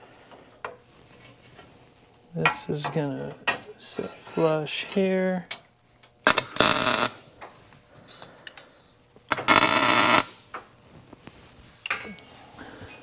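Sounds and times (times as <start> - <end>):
welding arc bursts: 6.2 - 7.3, 9.3 - 10.4.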